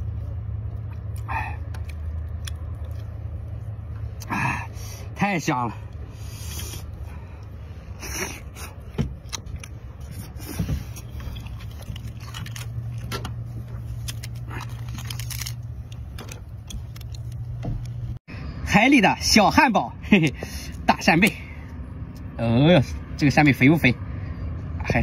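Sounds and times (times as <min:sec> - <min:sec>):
chewing and mouth sounds: 0:00.0 - 0:04.4, 0:05.9 - 0:17.5
steady low hum: 0:00.0 - 0:25.0
crab shell cracking: 0:11.4 - 0:13.2, 0:14.0 - 0:17.5.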